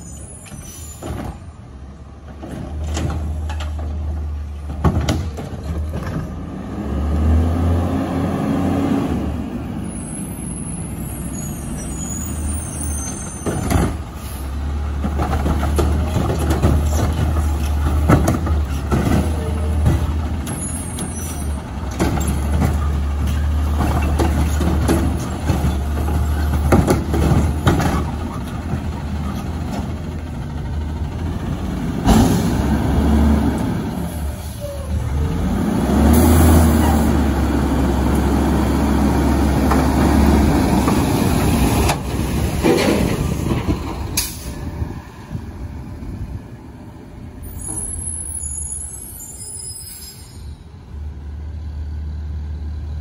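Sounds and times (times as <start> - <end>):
garbage truck diesel engine: 0.0 - 53.0
air brake hisses: 47.7 - 50.7.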